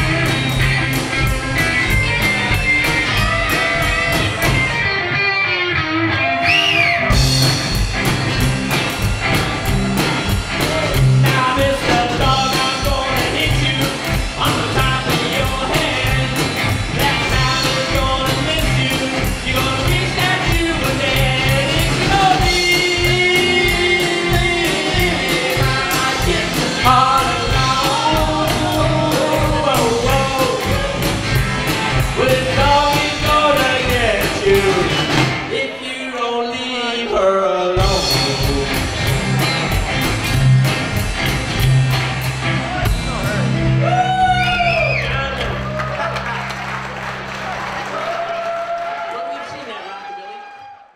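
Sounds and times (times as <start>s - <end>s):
rockabilly band playing: 0.0s - 49.1s
man singing lead vocal: 10.6s - 31.2s, 31.9s - 38.9s.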